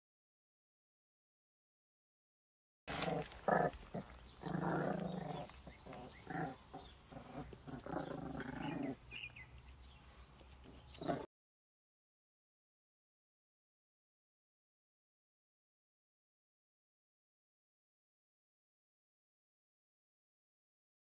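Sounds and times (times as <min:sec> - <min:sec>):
puppies growling: 0:02.9 - 0:11.3.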